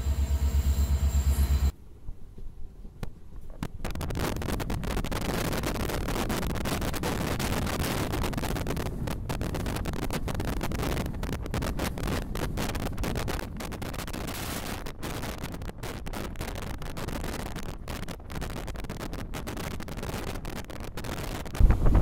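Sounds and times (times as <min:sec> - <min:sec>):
train running noise: 0:00.0 - 0:01.8
wind rushing over microphone: 0:03.5 - 0:22.0.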